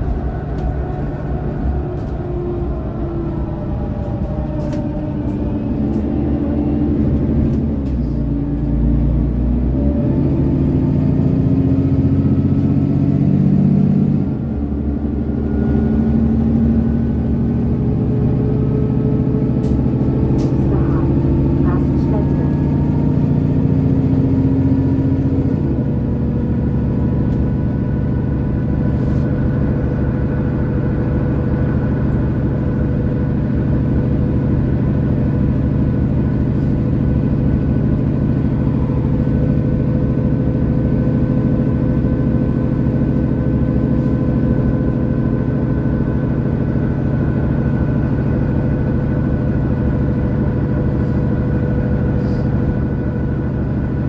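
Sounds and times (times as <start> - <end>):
bus engine running: 0.0 - 54.0
road rumble: 0.0 - 54.0.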